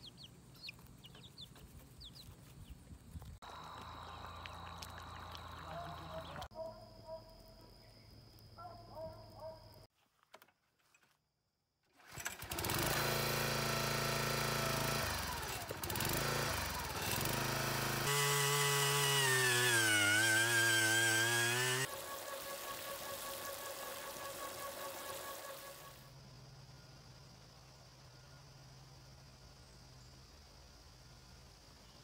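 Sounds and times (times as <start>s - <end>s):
earth auger engine boring: 12.0s - 26.0s
log splitter engine running: 12.0s - 26.0s
water gushing from hose: 20.1s - 26.0s.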